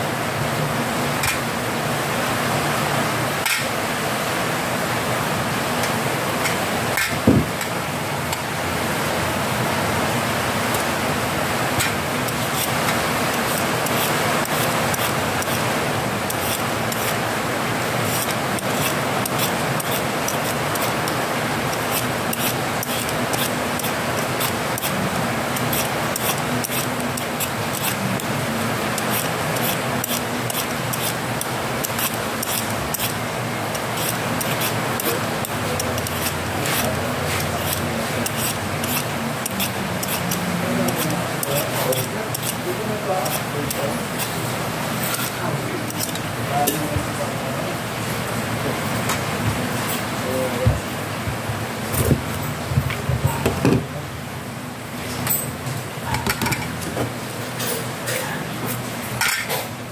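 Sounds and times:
vegetable peeler scraping skin: 0:12.2 - 0:15.7, 0:16.3 - 0:17.2, 0:18.0 - 0:25.0, 0:25.6 - 0:28.3, 0:29.0 - 0:42.6, 0:43.2 - 0:44.4, 0:45.1 - 0:46.2.

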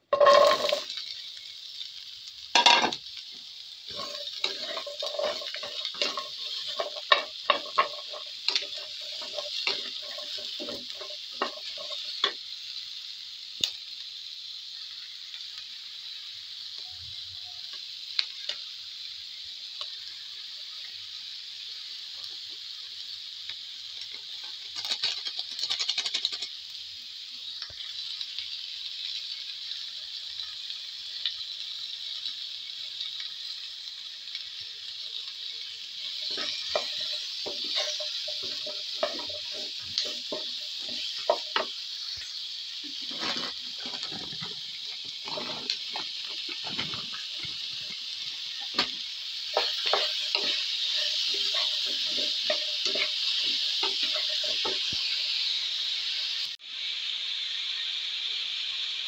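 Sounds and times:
wooden spatula scraping a pan: 0:00.0 - 0:01.0, 0:03.9 - 0:12.4, 0:36.1 - 0:41.7, 0:42.9 - 0:47.9, 0:48.6 - 0:55.0
vegetables sizzling in a frying pan: 0:00.0 - 0:59.0.

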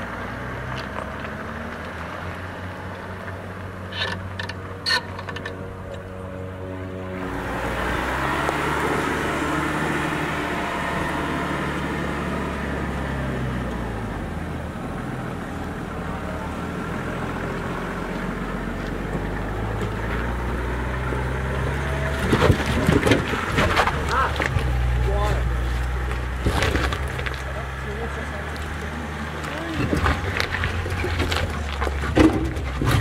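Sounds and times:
diesel engine under load: 0:00.0 - 0:33.0
tyres crunching over rocks: 0:17.5 - 0:33.0.

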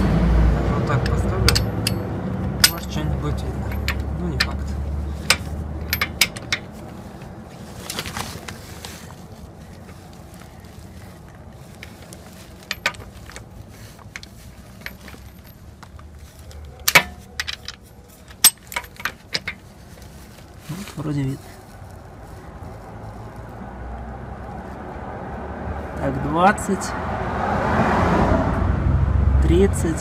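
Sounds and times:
light metallic clicks and knocks: 0:00.9 - 0:07.3, 0:11.7 - 0:19.9.

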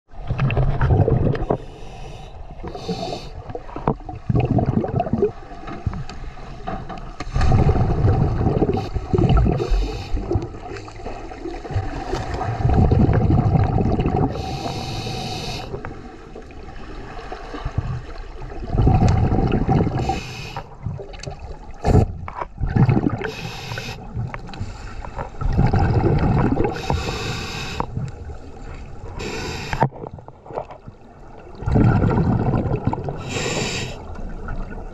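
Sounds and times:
exhaled bubbles gushing underwater: 0:00.1 - 0:06.1, 0:07.3 - 0:24.5, 0:25.1 - 0:34.9
regulator inhalation hiss: 0:01.6 - 0:03.4, 0:09.6 - 0:10.3, 0:14.4 - 0:15.8, 0:20.0 - 0:20.6, 0:23.3 - 0:24.1, 0:26.8 - 0:27.9, 0:29.2 - 0:29.8, 0:33.2 - 0:34.0.

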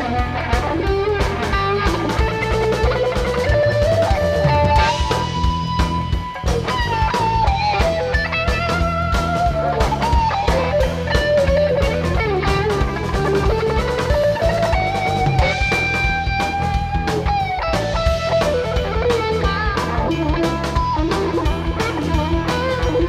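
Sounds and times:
bass guitar: 0:00.0 - 0:23.0
drum kit: 0:00.0 - 0:23.0
electric lead guitar solo: 0:00.0 - 0:23.0.

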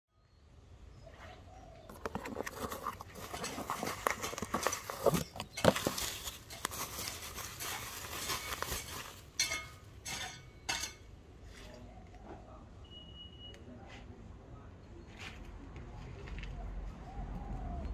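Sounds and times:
bubble wrap crinkling: 0:01.9 - 0:09.5
short rustles: 0:01.9 - 0:10.3.

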